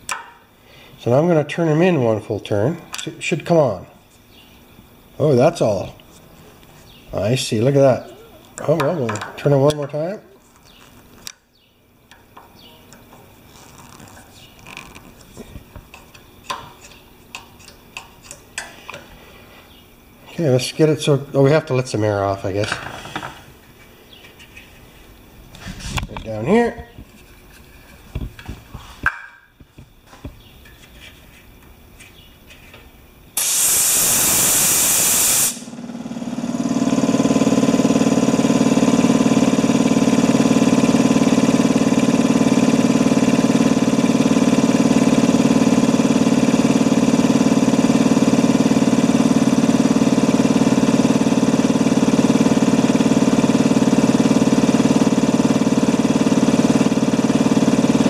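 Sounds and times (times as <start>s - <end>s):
air compressor motor running: 0.0s - 29.0s, 33.4s - 58.0s
compressed air hissing: 33.4s - 35.7s.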